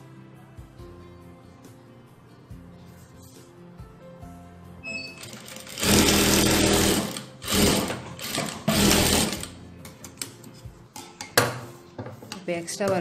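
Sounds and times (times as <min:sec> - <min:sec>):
sewing machine stitching: 0:05.2 - 0:09.5.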